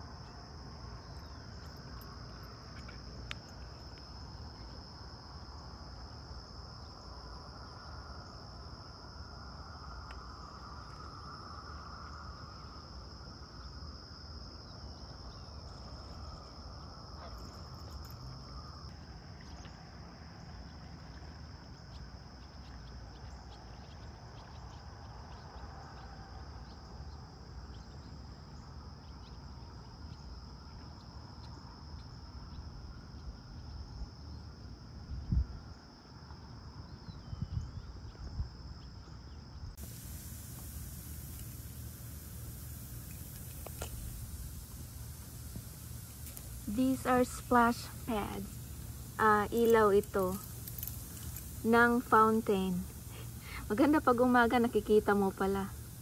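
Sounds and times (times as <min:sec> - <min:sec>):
insects trilling: 0:00.0 - 0:56.0
wind rumble: 0:39.7 - 0:56.0
low buzzing: 0:39.8 - 0:56.0.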